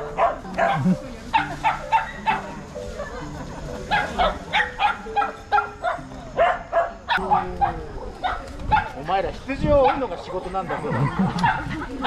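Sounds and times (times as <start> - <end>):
dogs barking: 0.0 - 2.7, 3.8 - 9.1, 9.7 - 12.0.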